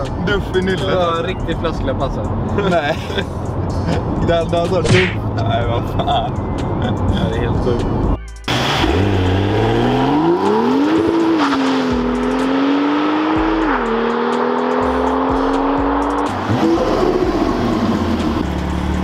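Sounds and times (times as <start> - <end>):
background music: 0.0 - 19.0
car engine accelerating hard: 8.5 - 19.0.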